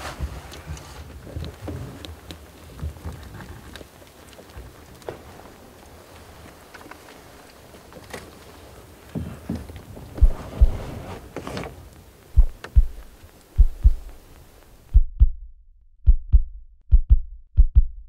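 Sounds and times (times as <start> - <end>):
background hiss: 0.0 - 15.0
heartbeat thumps: 10.1 - 11.1, 12.3 - 14.2, 14.8 - 18.0.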